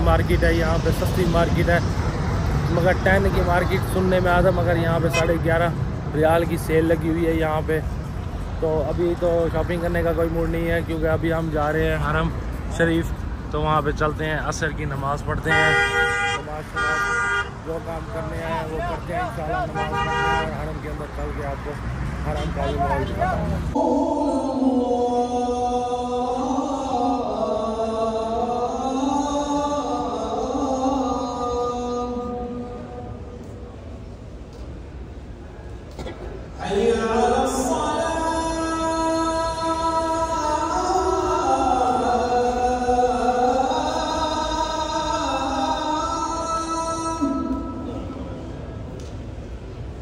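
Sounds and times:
person chanting a slow melody: 0:23.7 - 0:33.8, 0:36.6 - 0:48.7.

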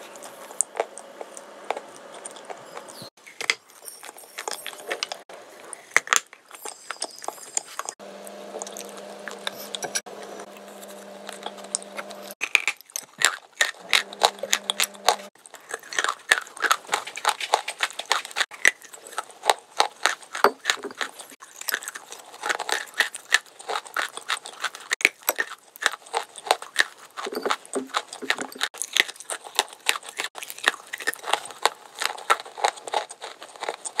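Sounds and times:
low buzz: 0:08.0 - 0:12.4, 0:13.8 - 0:15.3.

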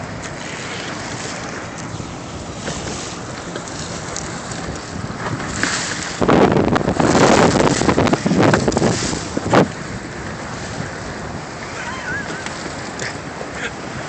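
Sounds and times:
water splashing along hull: 0:00.0 - 0:14.0
wind buffeting microphone: 0:00.0 - 0:14.0.

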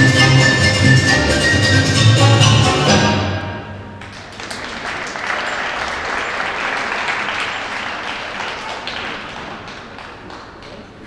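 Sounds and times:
skating program music: 0:00.0 - 0:04.2
audience applauding: 0:04.0 - 0:11.0.

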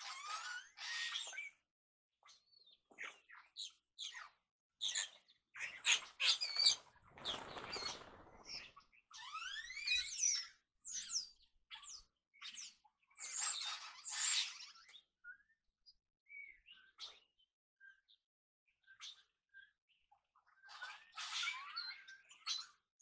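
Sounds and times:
starlings chirping: 0:03.3 - 0:14.9.

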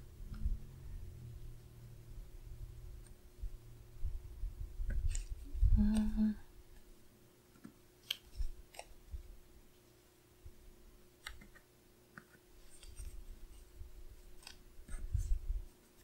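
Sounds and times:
paper rustling: 0:12.6 - 0:16.0.

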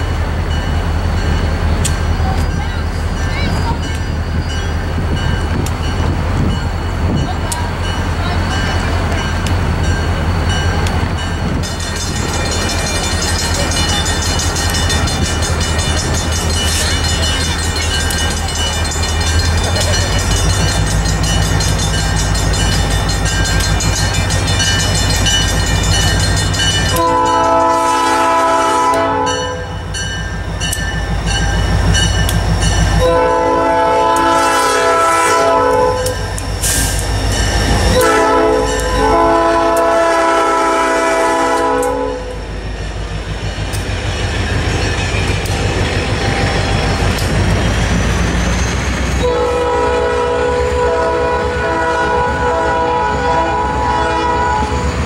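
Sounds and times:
diesel locomotive engine rumbling: 0:00.0 - 0:55.0
locomotive air horn blasts: 0:26.9 - 0:29.7, 0:33.0 - 0:36.2, 0:37.9 - 0:42.4, 0:49.2 - 0:54.8.

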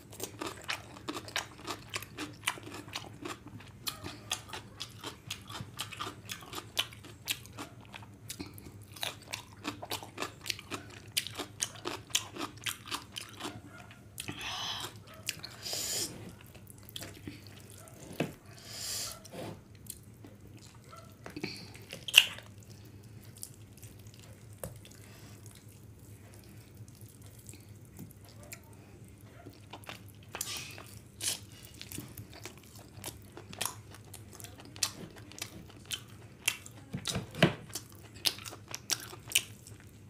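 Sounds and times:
chewing: 0:00.0 - 0:40.0
wet eating clicks and smacks: 0:19.8 - 0:22.6.

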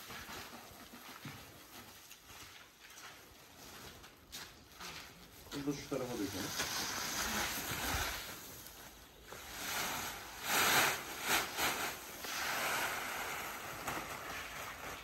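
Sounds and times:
grain feed being poured: 0:05.6 - 0:15.0.

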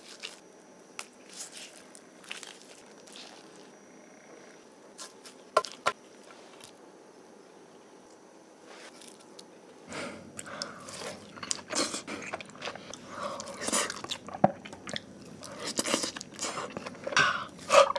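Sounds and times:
person chewing food: 0:10.3 - 0:17.9.

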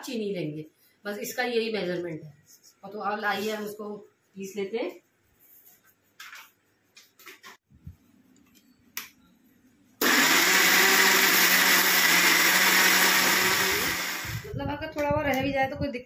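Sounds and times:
mixer grinder running: 0:10.0 - 0:14.5.

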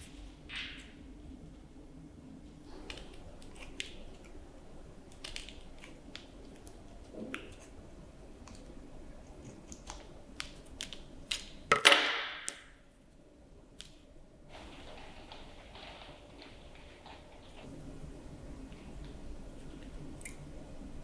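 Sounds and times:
scissors snipping paper: 0:05.0 - 0:07.8, 0:08.4 - 0:11.6
paper rustling: 0:14.5 - 0:17.7.

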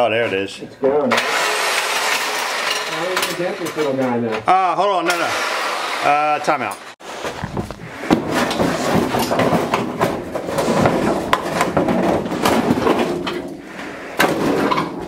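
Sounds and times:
metal clattering and knocking: 0:07.2 - 0:15.0.

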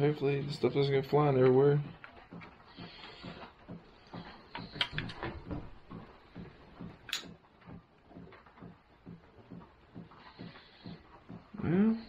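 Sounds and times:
small parts clicking and tapping: 0:01.3 - 0:08.8.

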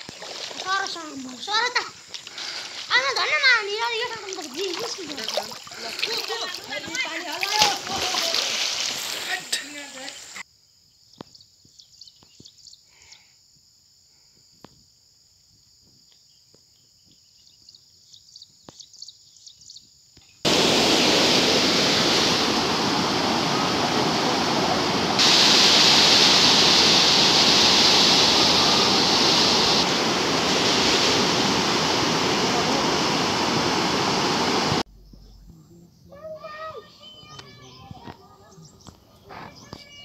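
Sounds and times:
fast turbulent river rushing: 0:20.5 - 0:34.8.

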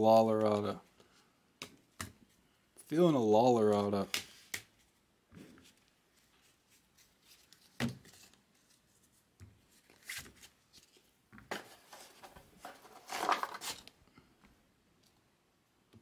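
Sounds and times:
cards sliding and rustling: 0:04.1 - 0:14.0.

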